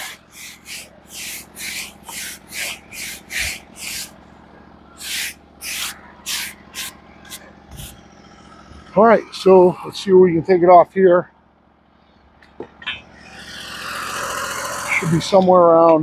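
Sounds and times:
brush scrubbing bark: 0.0s - 4.2s, 5.0s - 8.0s
small engine running: 0.0s - 16.0s.

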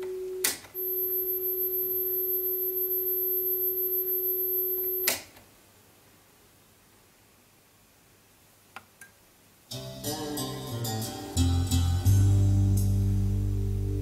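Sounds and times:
steady test tone: 0.0s - 5.1s.

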